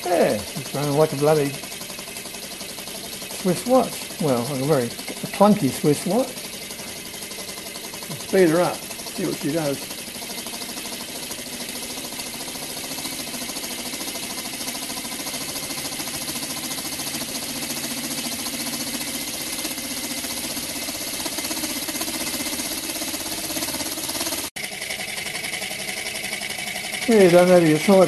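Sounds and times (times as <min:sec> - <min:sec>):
exhaust air hissing: 0:00.0 - 0:28.0
model steam engine clunky beat: 0:00.0 - 0:28.0.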